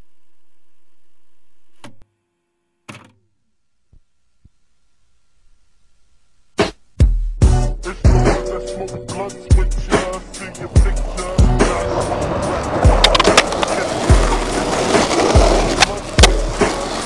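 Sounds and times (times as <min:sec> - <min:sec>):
steady electronic hum: 0:00.0 - 0:06.9.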